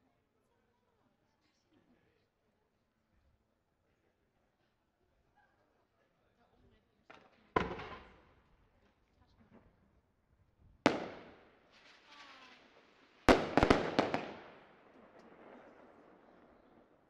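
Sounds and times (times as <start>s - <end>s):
firework shells bursting: 10.9s - 15.4s.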